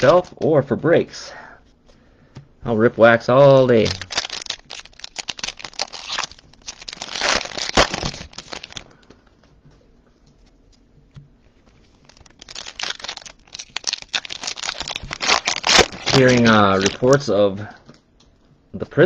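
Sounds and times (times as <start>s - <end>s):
foil wrappers crinkling and tearing: 0.0s - 0.4s, 3.4s - 9.1s, 11.7s - 17.8s
cards being handled: 3.5s - 17.7s.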